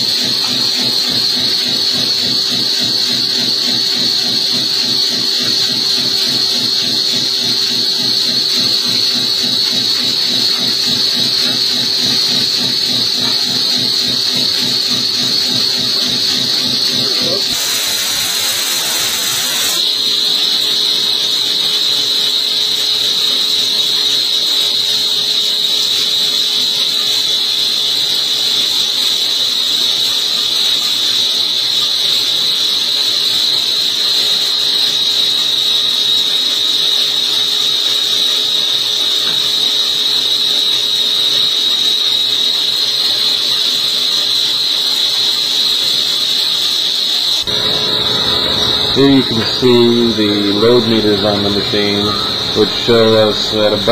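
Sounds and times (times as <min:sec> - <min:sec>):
low machine hum: 0:00.0 - 0:23.2, 0:47.4 - 0:53.9
high-pitched lathe cutting tone: 0:00.0 - 0:53.9
hissing burst: 0:15.7 - 0:23.0.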